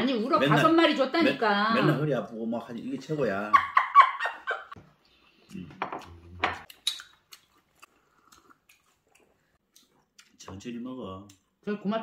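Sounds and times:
person chewing: 5.4 - 10.4.

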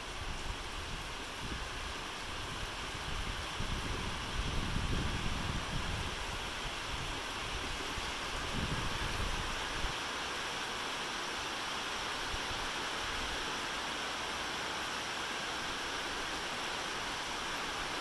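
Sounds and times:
wind rumble on microphone: 0.0 - 10.0
steady rain falling: 0.0 - 18.0.

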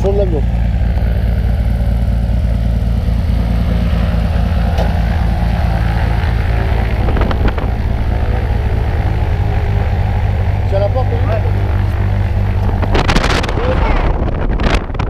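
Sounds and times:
propeller plane engine idling: 0.0 - 15.0.

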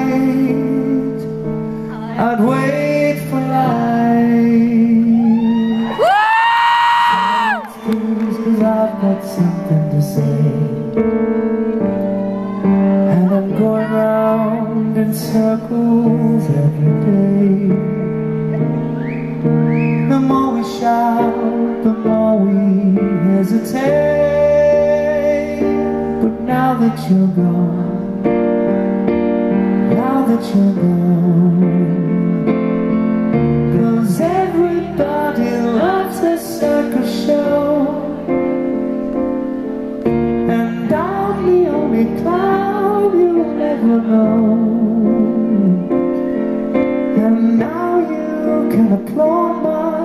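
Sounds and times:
man singing slow melody: 0.0 - 50.0
piano: 0.0 - 50.0.

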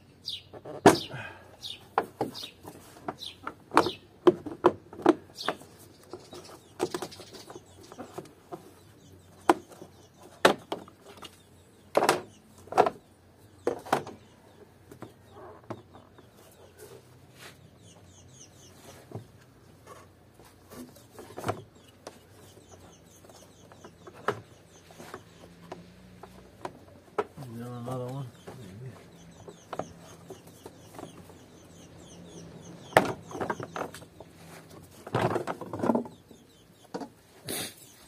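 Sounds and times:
plastic clacks and knocks: 3.1 - 8.7, 9.4 - 13.0, 13.6 - 14.2, 34.8 - 36.3.

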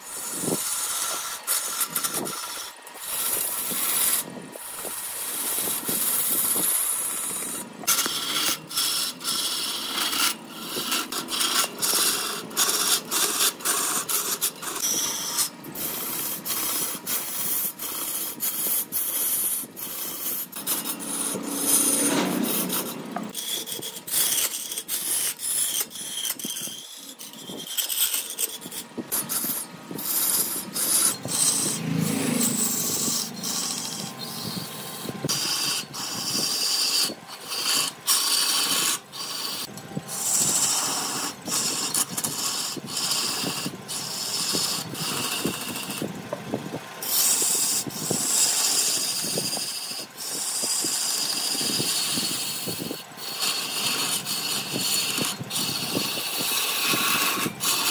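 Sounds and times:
tool rasping against wood: 0.0 - 57.9.

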